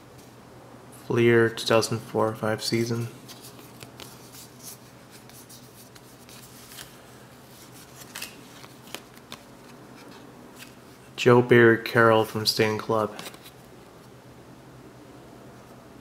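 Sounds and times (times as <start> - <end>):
cardboard cards sliding: 3.2 - 11.0, 13.1 - 13.6
light clicks of card edges: 3.3 - 7.0.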